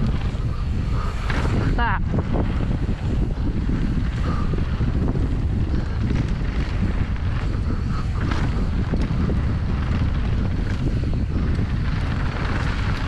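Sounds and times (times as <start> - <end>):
bike clicks and knocks: 0.0 - 13.0
wind buffeting microphone: 0.0 - 13.0.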